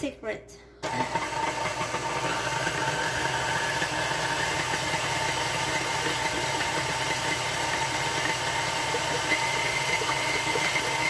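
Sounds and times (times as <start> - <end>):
stand mixer humming and whining: 0.8 - 11.0.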